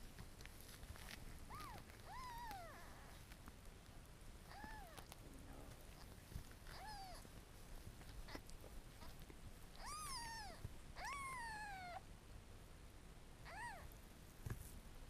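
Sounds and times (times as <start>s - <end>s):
kitten mewing: 1.5s - 3.2s, 4.4s - 5.2s, 5.8s - 7.3s, 8.1s - 12.1s, 13.4s - 14.0s.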